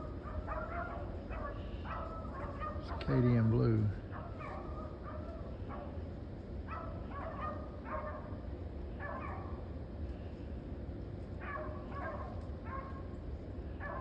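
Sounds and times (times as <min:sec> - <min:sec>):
hounds baying: 0:00.0 - 0:06.0, 0:06.6 - 0:08.4, 0:09.0 - 0:09.7, 0:11.4 - 0:13.1, 0:13.8 - 0:14.0.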